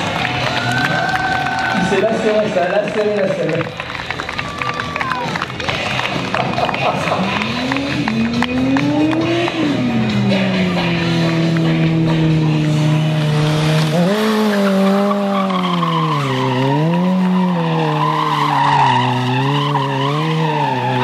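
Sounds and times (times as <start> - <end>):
motorcycle engine revving: 5.7 - 21.0
tyre squealing: 13.1 - 21.0.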